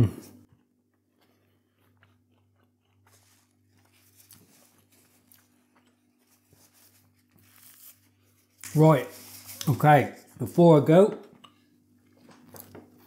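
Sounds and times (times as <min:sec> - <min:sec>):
faint room hum: 0:00.0 - 0:13.0
paper napkin rustling: 0:03.1 - 0:10.6.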